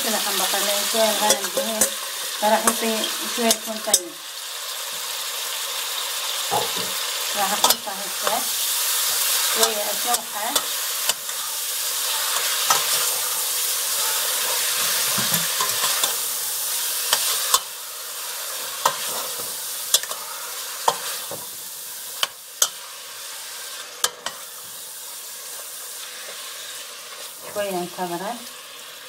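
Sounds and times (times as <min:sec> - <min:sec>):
meat sizzling in oil: 0:00.0 - 0:29.0
spoon clacking against pot: 0:19.9 - 0:20.2.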